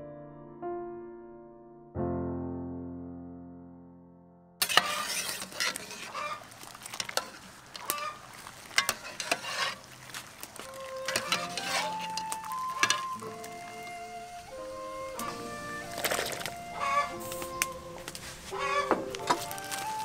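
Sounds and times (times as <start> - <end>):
ladle scraping metal pot: 4.6 - 13.6, 15.0 - 20.0
water bubbling: 5.4 - 20.0.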